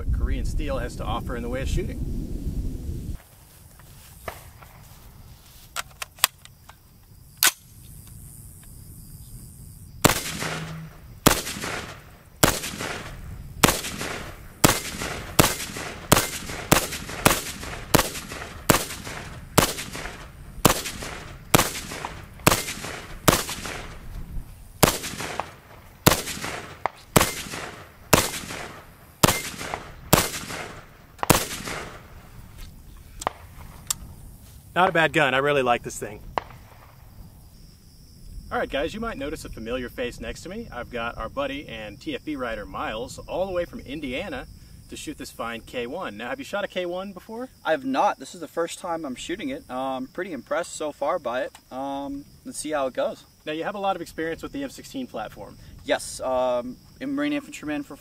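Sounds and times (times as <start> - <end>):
rifle shots with echo: 10.0 - 24.1, 24.8 - 32.2.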